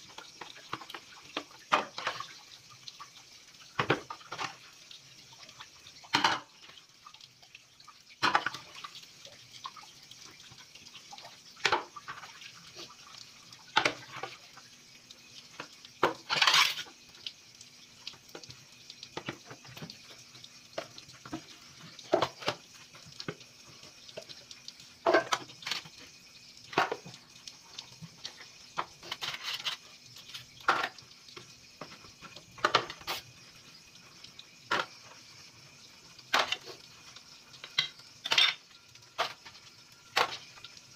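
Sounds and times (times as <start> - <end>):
dishes clinking and knocking: 6.1 - 6.5, 25.0 - 25.4, 32.6 - 33.1, 37.8 - 38.6.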